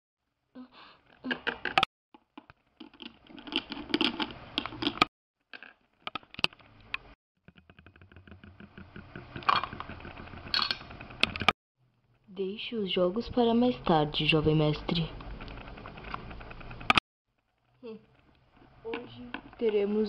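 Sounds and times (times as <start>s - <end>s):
plastic toy figures clicking and tapping: 1.1s - 11.5s, 14.2s - 17.0s, 18.0s - 20.0s.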